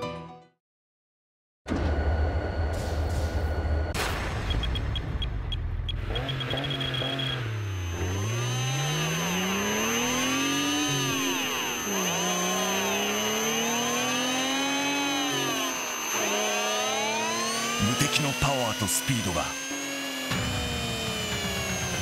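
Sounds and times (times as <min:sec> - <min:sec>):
motor whine revving: 0:05.9 - 0:22.0.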